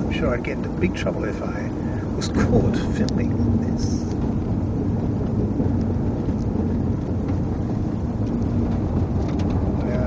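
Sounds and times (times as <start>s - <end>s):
car rumbling along road: 0.0s - 10.0s
faint engine hum: 0.0s - 10.0s.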